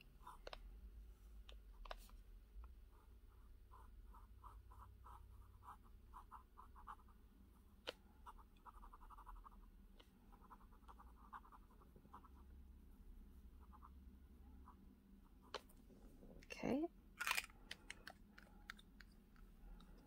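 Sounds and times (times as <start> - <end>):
pen scratching on paper: 2.9 - 9.6, 10.3 - 12.5.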